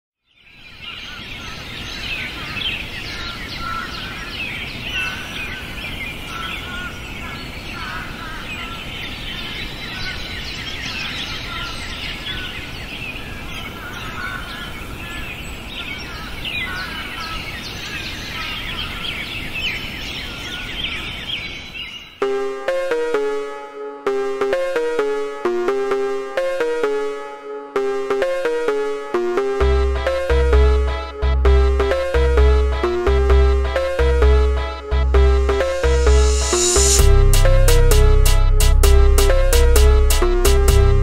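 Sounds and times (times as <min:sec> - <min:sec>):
small birds chirping and singing: 0:00.2 - 0:22.2
music with pitched notes: 0:22.2 - 0:41.0.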